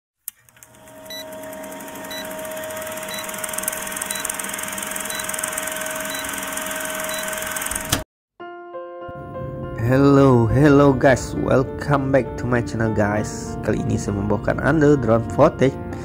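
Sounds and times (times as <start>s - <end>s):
film projector whirring and clattering: 0.3s - 8.0s
short high beeps: 4.0s - 4.3s, 5.1s - 7.4s.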